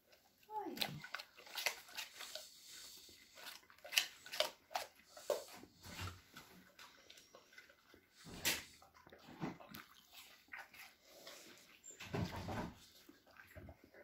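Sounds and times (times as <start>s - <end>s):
dog chewing food: 0.0s - 14.0s.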